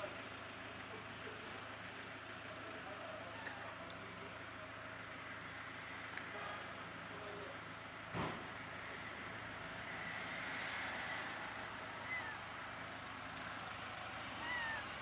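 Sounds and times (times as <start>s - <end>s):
kitten mewing: 3.2s - 3.9s, 12.0s - 12.4s, 14.4s - 15.0s.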